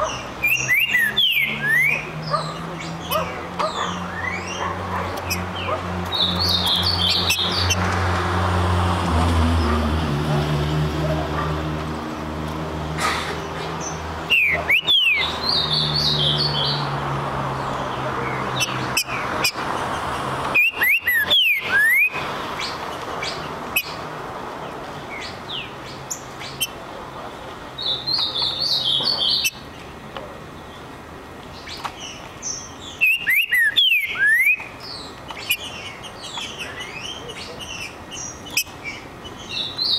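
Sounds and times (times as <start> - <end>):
high bird chirps: 0.0 - 7.8, 13.9 - 16.9, 20.5 - 24.0, 27.8 - 29.6, 31.6 - 39.9
bird singing whistled phrases: 0.4 - 2.0, 14.3 - 15.3, 33.0 - 34.7.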